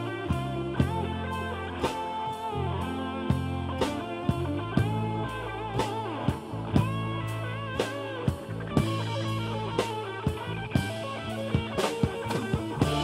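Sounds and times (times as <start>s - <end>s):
bass guitar: 0.0s - 13.0s
electric guitar bending notes: 0.0s - 13.0s
drum beat: 7.8s - 13.0s.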